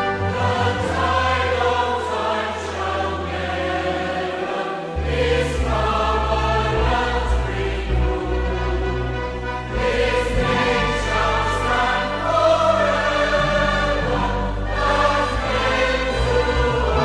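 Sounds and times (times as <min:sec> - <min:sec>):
choir singing a hymn: 0:00.0 - 0:17.0
instrumental accompaniment: 0:00.0 - 0:17.0.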